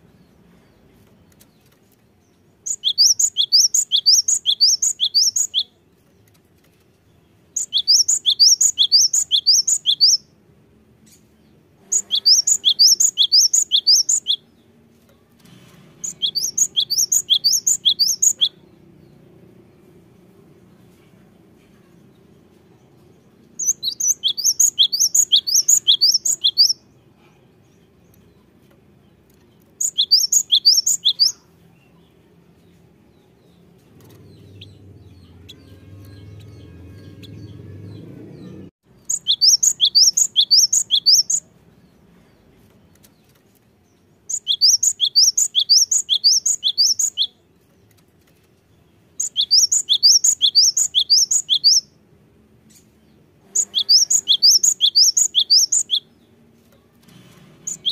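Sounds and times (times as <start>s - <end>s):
bird singing two-note phrases: 34.6s - 38.6s.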